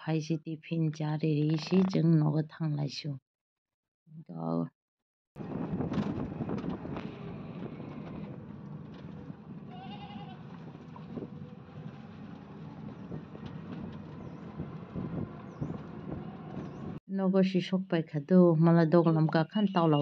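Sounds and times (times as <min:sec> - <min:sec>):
auto-rickshaw engine and road rumble: 0:05.4 - 0:17.0.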